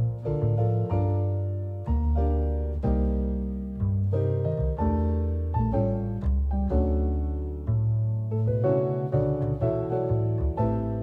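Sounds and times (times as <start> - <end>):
bass line: 0.0 - 11.0
piano background music: 0.0 - 11.0.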